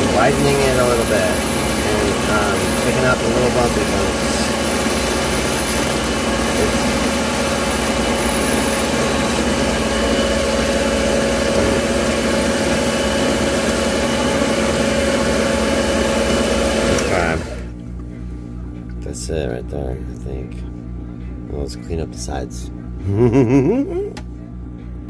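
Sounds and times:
ring saw grinding glass: 4.3 - 9.4.

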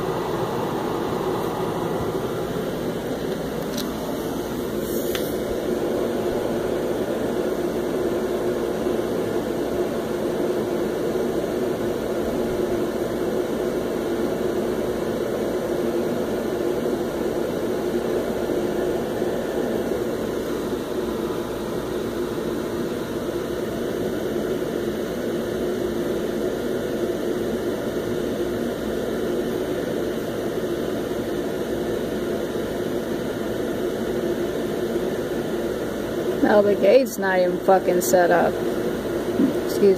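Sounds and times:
steady rushing noise: 0.0 - 9.4.

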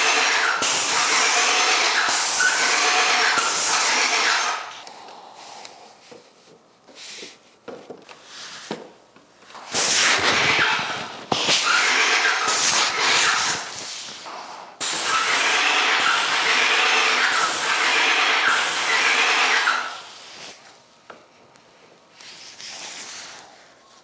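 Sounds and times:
paint sprayer hissing: 0.0 - 4.7, 9.7 - 20.5.

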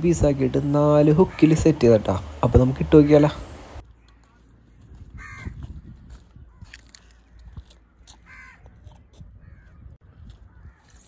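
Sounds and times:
crow cawing: 5.2 - 5.6, 8.3 - 8.7, 10.5 - 11.0.

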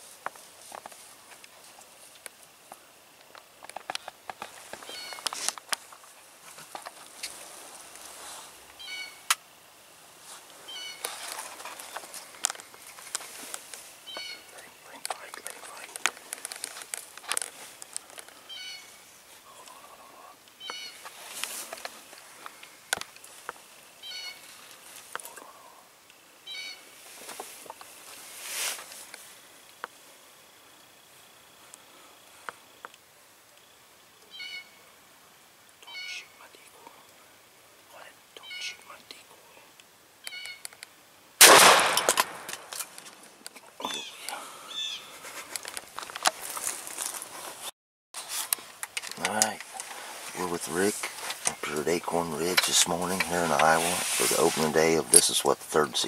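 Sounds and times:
leaf rustle: 0.0 - 56.0
wild turkeys calling: 4.8 - 5.5, 8.7 - 9.4, 10.5 - 14.8, 18.0 - 22.8, 24.0 - 24.8, 26.4 - 26.9, 34.2 - 34.8, 35.8 - 36.7, 38.4 - 39.0, 40.2 - 40.7, 43.8 - 45.2
shotgun blast: 41.4 - 42.6.

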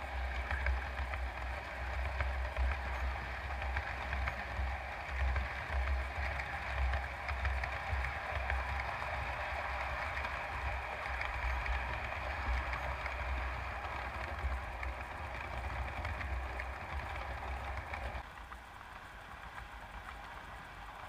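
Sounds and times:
model trains whirring: 0.0 - 21.0.

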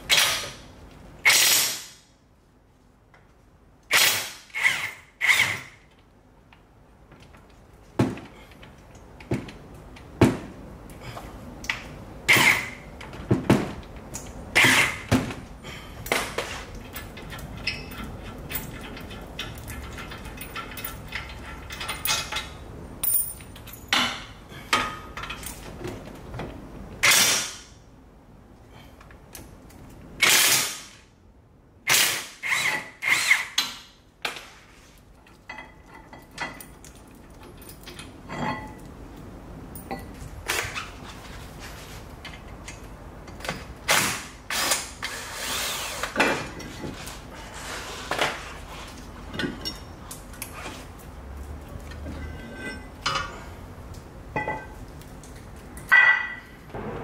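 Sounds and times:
metallic clicks and clanks: 16.1 - 24.2.

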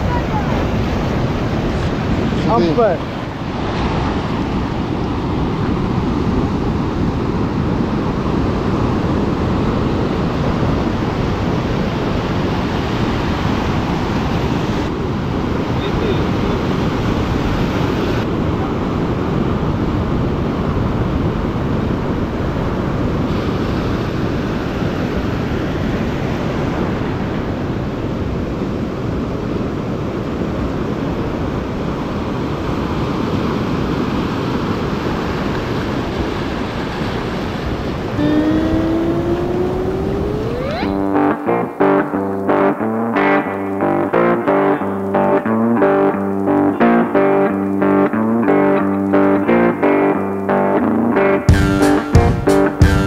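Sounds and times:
surf washing on beach: 0.0 - 41.2
wind buffeting microphone: 0.0 - 41.3.

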